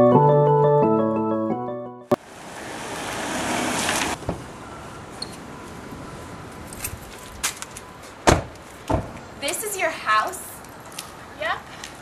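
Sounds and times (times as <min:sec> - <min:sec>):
minivan engine and tyre noise: 0:02.2 - 0:09.4.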